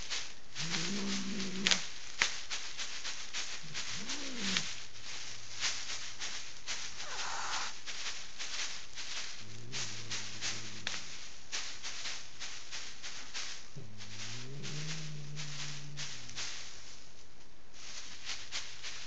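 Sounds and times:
plastic sheeting crinkling: 0.0s - 19.0s
cat growling: 0.6s - 1.8s, 3.6s - 4.7s, 7.0s - 7.8s, 9.2s - 11.3s, 13.7s - 16.7s
cat yowling: 7.0s - 7.8s.

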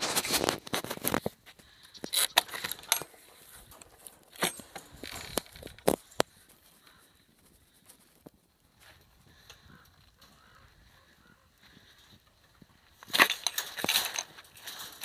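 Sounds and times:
metal gate chain rattling: 2.1s - 6.2s, 13.0s - 15.0s.

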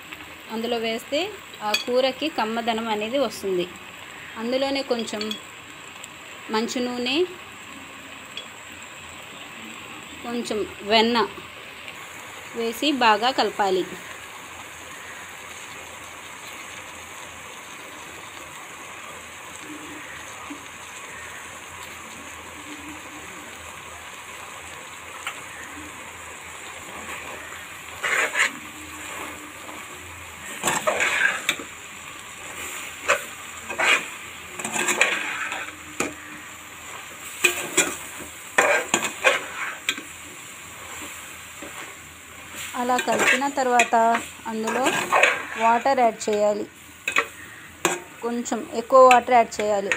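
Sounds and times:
steady low hiss: 0.0s - 49.9s
metal spoon scraping cooking pot: 27.9s - 28.6s, 30.6s - 31.6s, 33.0s - 36.2s, 38.6s - 40.0s, 43.0s - 46.4s.

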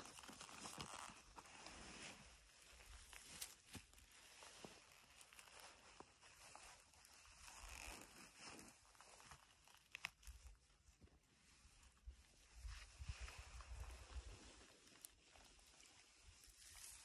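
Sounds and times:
clothing rustling: 0.0s - 9.9s.

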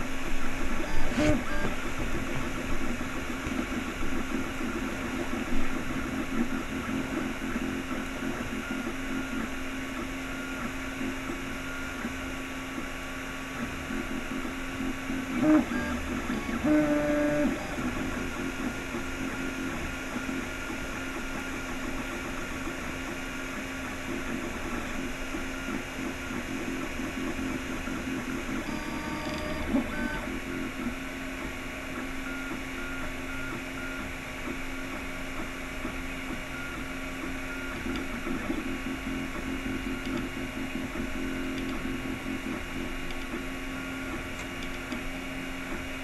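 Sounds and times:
cooling fan whirring: 0.0s - 46.0s
stepper motors whining: 0.4s - 10.8s, 13.8s - 22.8s, 23.8s - 30.3s.

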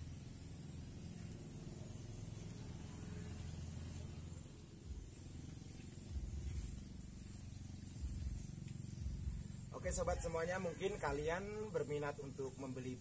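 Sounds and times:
low rumble: 0.0s - 10.2s
high-pitched insect drone: 0.0s - 13.0s.

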